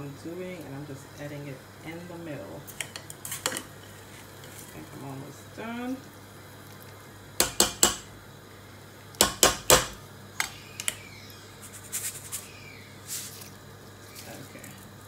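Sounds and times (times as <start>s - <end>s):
metal spoon tapping on pot: 7.4s - 8.1s, 9.2s - 10.0s.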